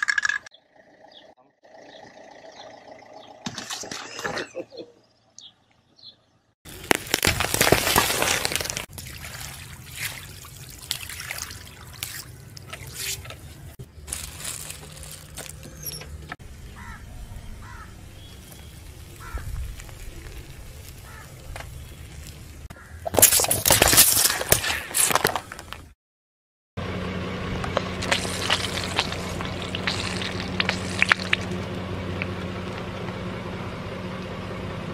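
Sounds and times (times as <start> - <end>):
car tyres crushing objects: 6.7 - 9.0, 12.0 - 16.3, 23.0 - 25.9, 27.6 - 33.2.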